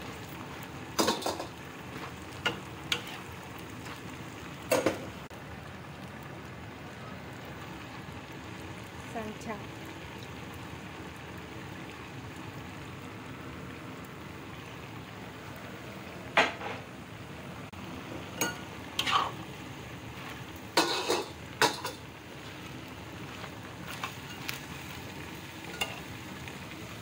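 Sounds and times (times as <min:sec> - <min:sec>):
sauce sizzling in a wok: 0:00.0 - 0:27.0
metal utensil scraping a pan: 0:02.4 - 0:03.4, 0:18.4 - 0:19.4, 0:20.2 - 0:22.0, 0:23.3 - 0:24.6.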